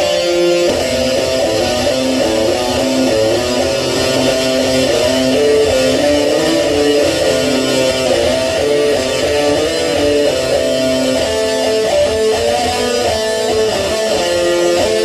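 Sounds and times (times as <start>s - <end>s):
electric guitar melody: 0.0s - 15.0s.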